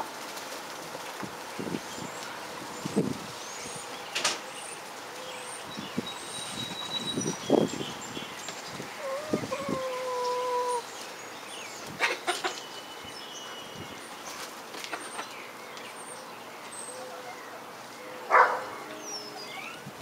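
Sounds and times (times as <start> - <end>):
young rooster crowing: 9.0 - 10.9.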